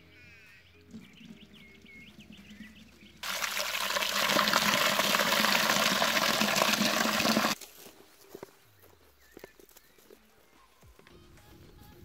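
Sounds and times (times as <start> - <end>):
water pouring from a bucket: 3.2 - 7.6.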